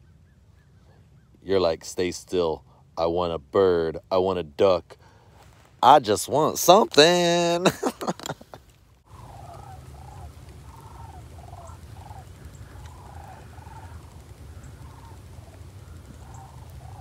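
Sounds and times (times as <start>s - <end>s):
cranes calling overhead: 9.1s - 17.0s.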